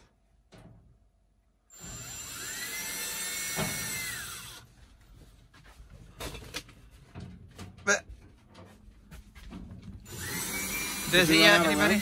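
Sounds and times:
cordless drill whining: 1.7s - 4.7s, 10.0s - 12.0s.

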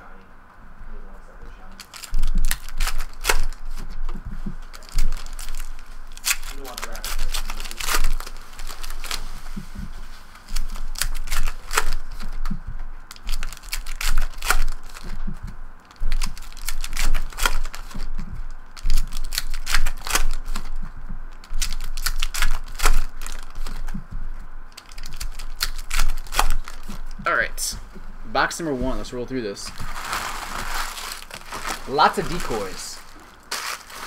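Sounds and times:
card packs being opened: 1.7s - 9.2s, 10.4s - 12.5s, 13.1s - 15.2s, 15.9s - 18.2s, 18.8s - 20.8s, 21.4s - 23.9s, 24.7s - 27.2s, 29.7s - 34.0s.

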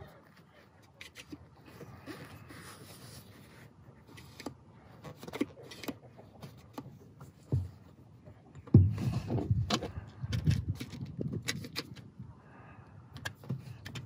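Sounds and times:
low rumbling handling noise: 3.2s - 12.3s.

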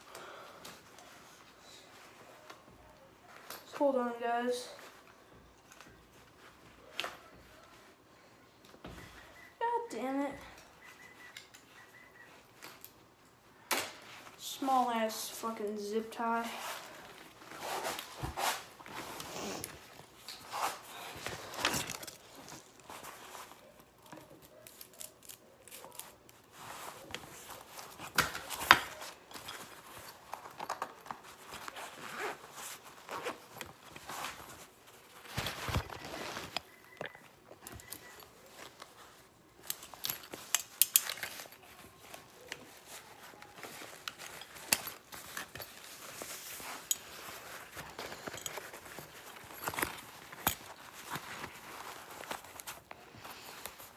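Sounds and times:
fabric bag rustling: 16.3s - 24.6s, 25.7s - 53.9s
hands working at a bike: 39.6s - 53.9s.

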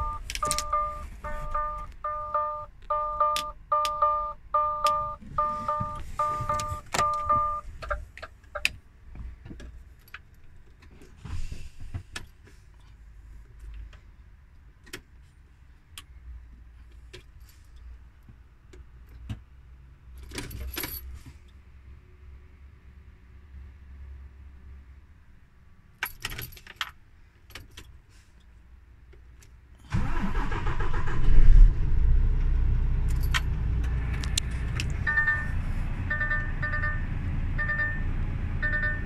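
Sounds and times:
warning chime beeping: 0.0s - 7.7s, 35.0s - 39.0s.

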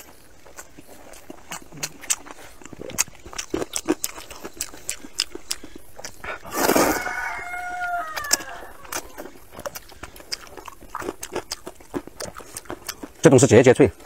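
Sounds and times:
wet chewing and mouth clicks: 0.0s - 14.0s
slurping noodles: 6.3s - 7.1s.

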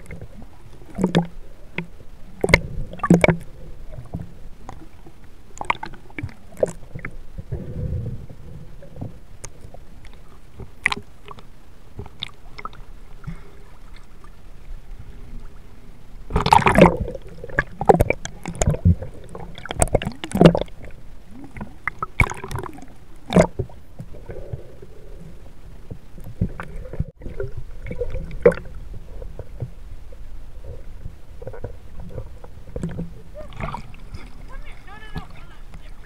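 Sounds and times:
muffled underwater rumble: 0.0s - 36.0s
water splashing and gurgling: 0.0s - 36.0s.

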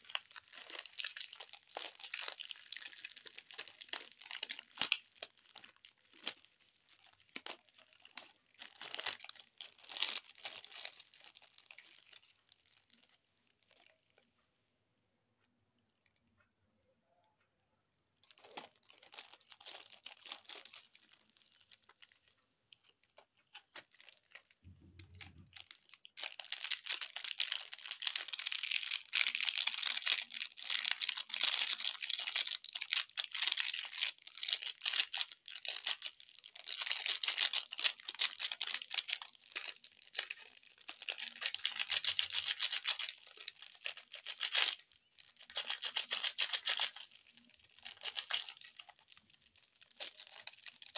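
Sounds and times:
plastic wrappers crinkling: 0.0s - 14.4s, 18.2s - 50.9s.

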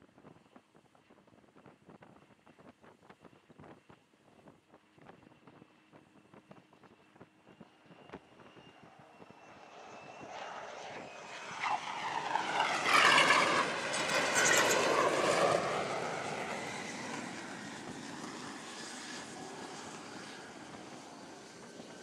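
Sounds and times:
jet engine whine and rush: 5.2s - 22.0s.

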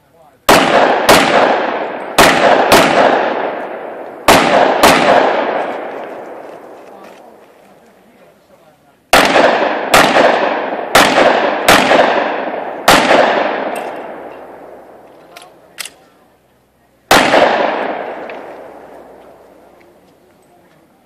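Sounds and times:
handgun shots echoing: 0.5s - 6.5s, 9.1s - 16.0s, 17.1s - 19.2s.

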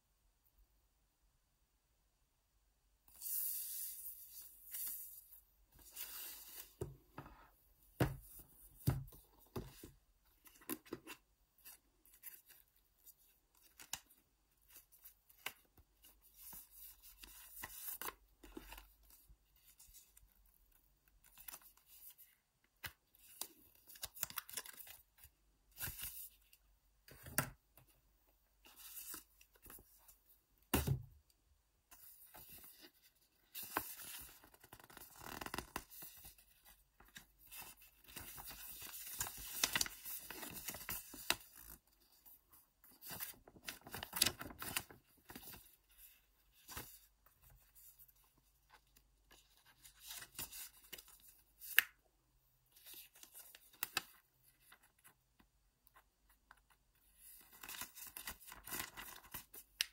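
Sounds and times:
paper rustling and crinkling: 32.0s - 51.8s, 57.1s - 59.8s.

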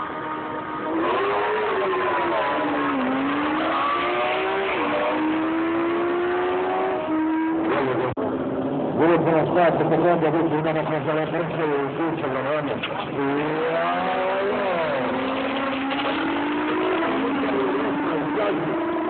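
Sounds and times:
motorcycles accelerating hard: 0.8s - 8.2s, 13.0s - 19.0s.

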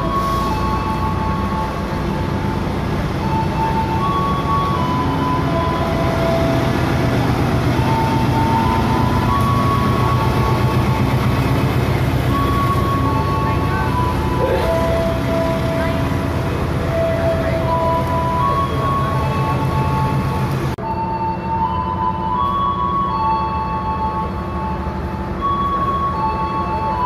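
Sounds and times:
passenger train rumbling past: 0.0s - 27.0s
station bell chime melody: 12.3s - 16.3s, 16.9s - 27.0s.

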